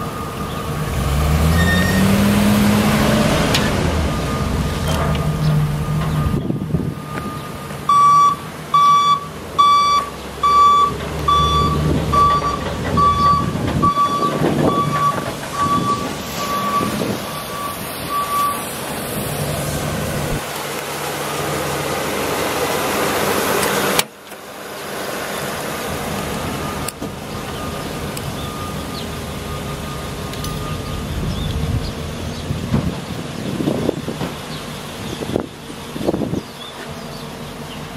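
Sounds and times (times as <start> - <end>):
reversing alarm beeping: 0.0 - 2.2, 3.6 - 18.7, 26.5 - 31.3
truck engine running: 0.0 - 37.9.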